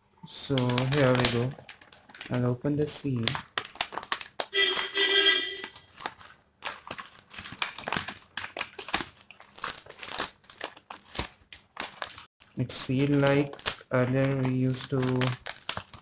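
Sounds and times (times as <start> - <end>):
wrapper crinkling and rustling: 0.3 - 16.0
short pitched tone: 4.6 - 5.9.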